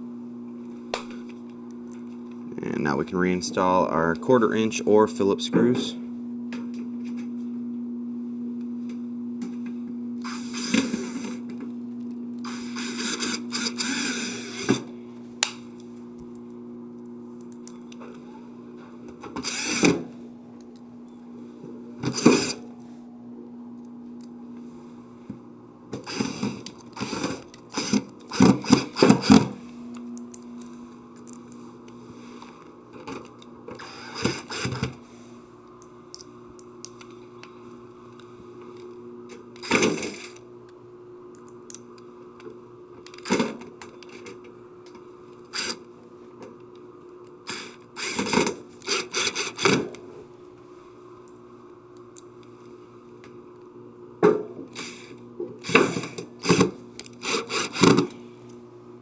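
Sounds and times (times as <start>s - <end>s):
steady low hum: 0.0s - 59.0s
cordless drill driving screws: 10.2s - 11.4s, 12.4s - 14.8s, 19.4s - 19.9s, 22.1s - 22.6s, 26.0s - 29.5s, 33.8s - 34.9s, 45.5s - 45.8s, 47.5s - 49.8s, 54.8s - 58.0s.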